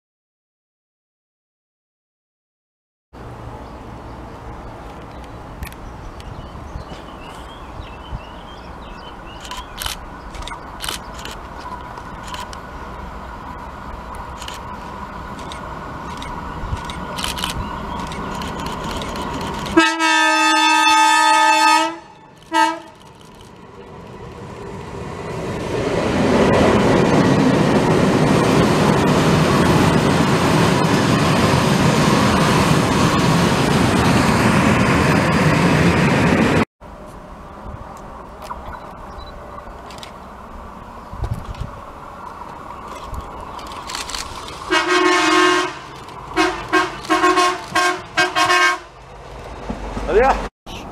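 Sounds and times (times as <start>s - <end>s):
train passing by: 3.2s - 50.9s
locomotive horn: 19.8s - 23.0s, 44.7s - 49.0s.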